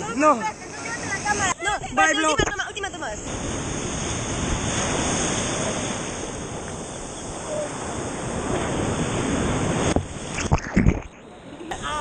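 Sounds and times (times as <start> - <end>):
ocean surf breaking: 0.0 - 12.0
wind on microphone: 0.0 - 12.0
water sloshing against camera: 9.8 - 11.8.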